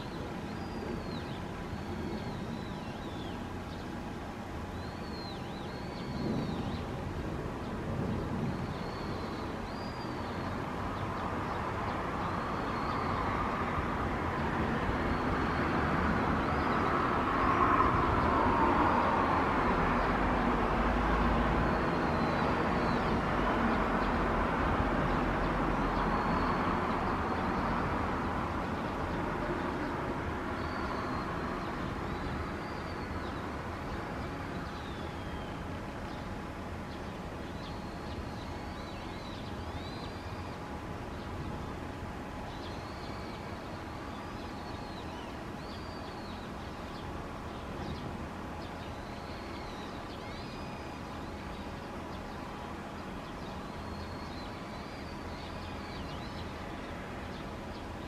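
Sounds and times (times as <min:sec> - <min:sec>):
jet engines rumbling: 0:00.0 - 0:37.6
birds chirping: 0:00.0 - 0:58.0
faint steady whine: 0:00.0 - 0:58.0.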